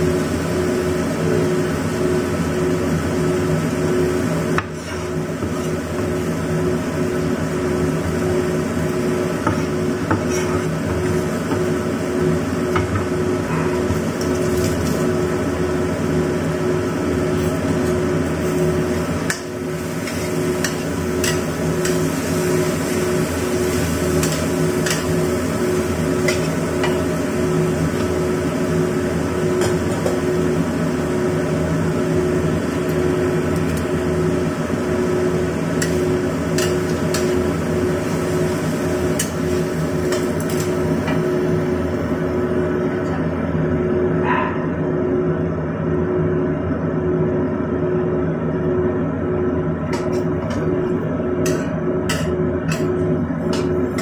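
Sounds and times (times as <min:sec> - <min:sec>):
steady low hum: 0:00.0 - 0:54.0
metal spatula scraping in a wok: 0:04.6 - 0:05.9, 0:09.5 - 0:11.2, 0:19.8 - 0:25.3.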